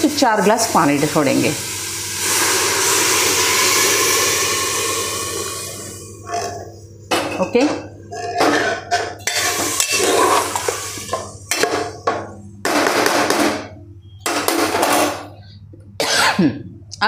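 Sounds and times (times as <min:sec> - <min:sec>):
metal ladle scraping pot: 0:07.3 - 0:11.9.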